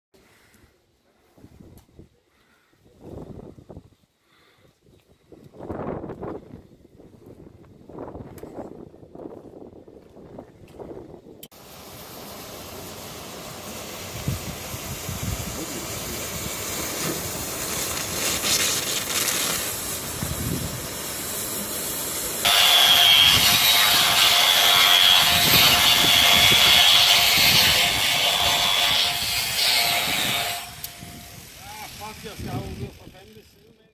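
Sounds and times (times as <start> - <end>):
cutting torch hissing: 11.5 - 33.6
angle grinder cutting steel: 22.4 - 33.8.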